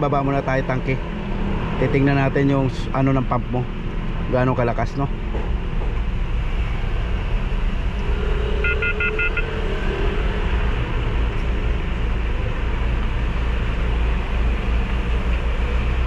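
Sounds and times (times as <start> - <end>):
short high-pitched beeps: 8.6 - 9.6.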